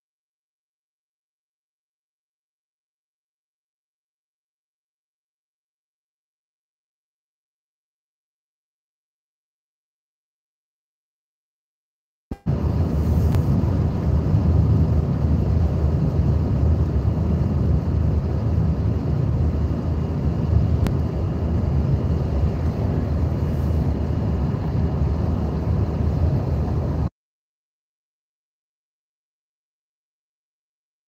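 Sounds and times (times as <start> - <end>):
car road and wind noise: 12.3 - 27.1.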